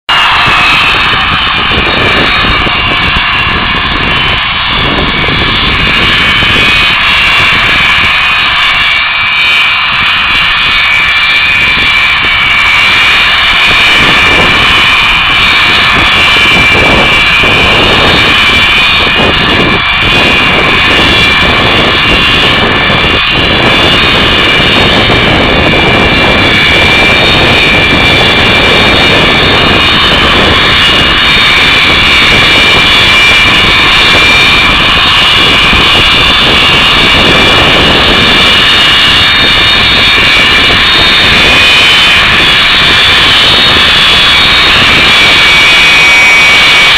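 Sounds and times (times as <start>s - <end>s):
jet aircraft engine whine: 0.0s - 46.9s
low engine rumble: 0.0s - 46.9s.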